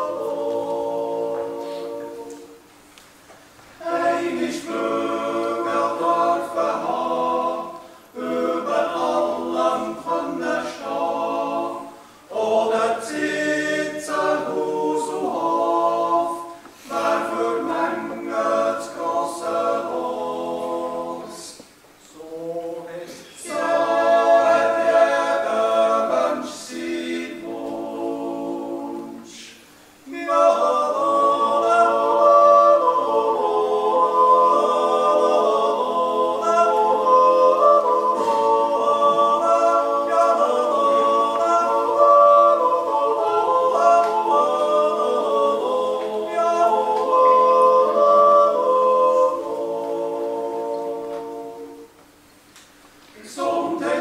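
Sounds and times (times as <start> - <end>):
men's choir yodeling: 0.0 - 2.6, 3.8 - 52.0, 53.2 - 54.0.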